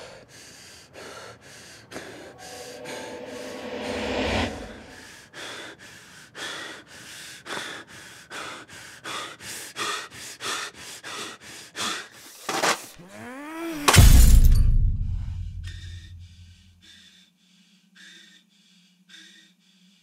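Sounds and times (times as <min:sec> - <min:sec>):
person gasping breaths: 0:00.0 - 0:03.0, 0:04.9 - 0:12.4, 0:15.7 - 0:20.0.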